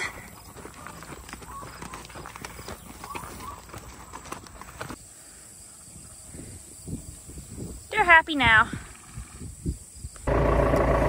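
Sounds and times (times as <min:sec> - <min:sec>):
footsteps crunching on gravel: 0:00.0 - 0:05.0
horse hooves clopping on gravel: 0:00.0 - 0:05.0
outdoor background noise: 0:00.0 - 0:11.0.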